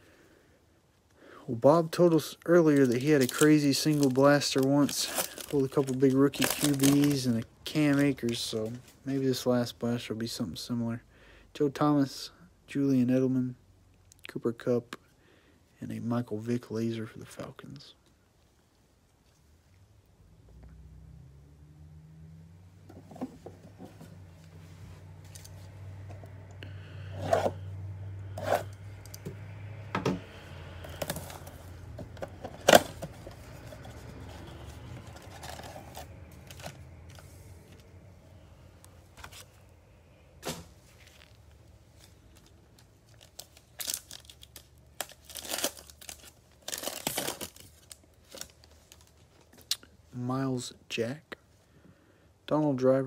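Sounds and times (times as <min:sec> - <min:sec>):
wrapper tearing and crinkling: 0:02.6 - 0:08.5, 0:32.5 - 0:37.2, 0:41.1 - 0:49.8.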